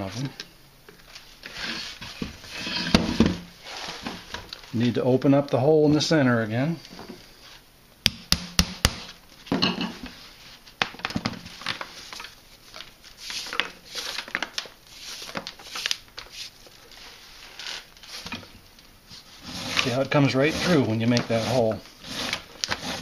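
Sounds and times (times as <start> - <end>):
rush strand rustling and scraping: 3.6 - 4.8, 11.6 - 18.5, 19.1 - 23.0.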